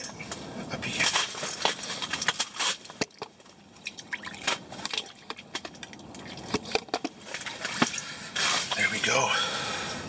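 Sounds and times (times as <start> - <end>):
water splashing and dripping: 1.4 - 8.8.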